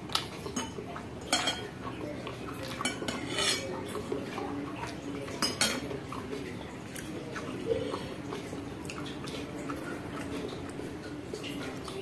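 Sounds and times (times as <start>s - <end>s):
fork scraping a ceramic plate: 2.9s - 3.7s.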